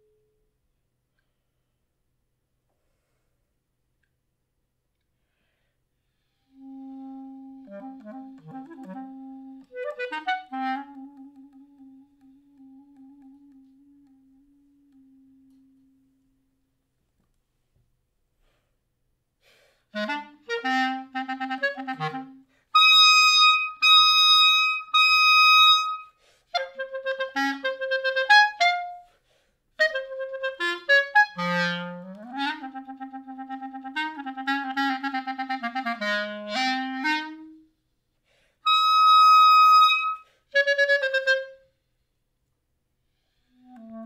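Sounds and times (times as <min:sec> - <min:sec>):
solo clarinet playing: 0:06.3 - 0:16.5, 0:19.9 - 0:29.2, 0:29.8 - 0:37.8, 0:38.6 - 0:41.8, 0:43.5 - 0:44.0.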